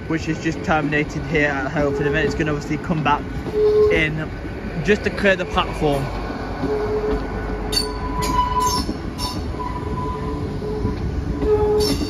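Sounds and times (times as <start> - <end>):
train rumbling: 0.0 - 12.0
wheel squeals: 6.6 - 12.0.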